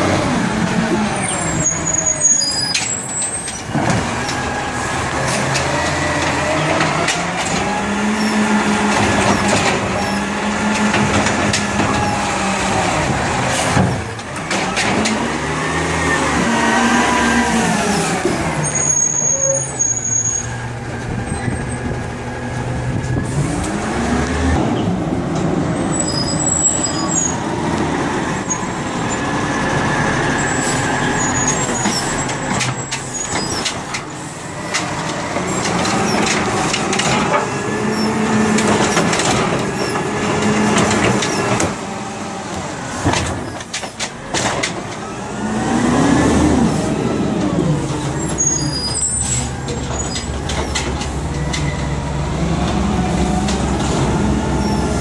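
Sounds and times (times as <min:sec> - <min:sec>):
truck engine revving: 0:00.0 - 0:55.0
metal clanks of arm and carts: 0:10.7 - 0:12.2, 0:29.8 - 0:41.8, 0:42.9 - 0:45.1, 0:48.1 - 0:52.0.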